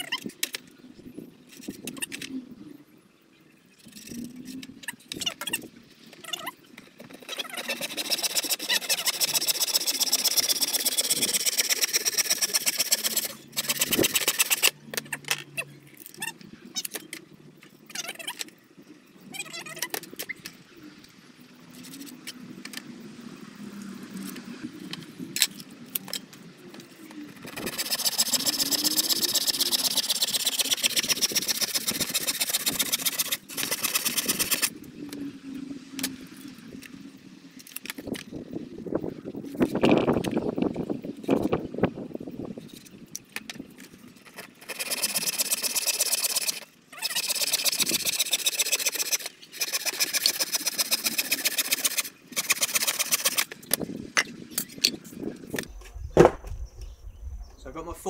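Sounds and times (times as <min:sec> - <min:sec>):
hand saw cutting wood: 0:07.2 - 0:14.7, 0:27.4 - 0:34.7, 0:44.4 - 0:53.5.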